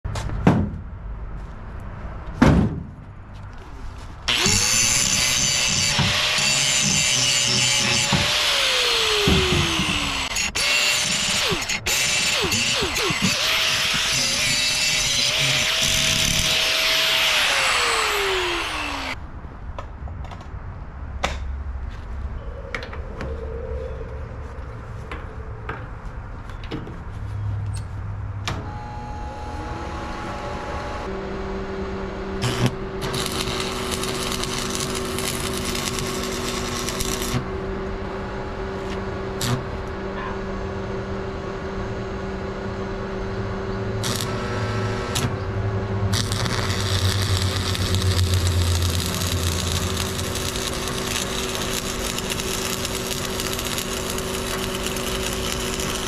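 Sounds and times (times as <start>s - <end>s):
welder electrical hum: 4.3s - 19.2s, 28.4s - 56.0s
angle grinder spinning down: 46.2s - 56.0s.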